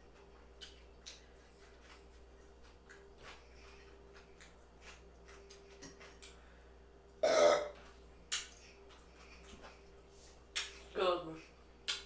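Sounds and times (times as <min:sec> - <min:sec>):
person burping: 0:07.2 - 0:07.8.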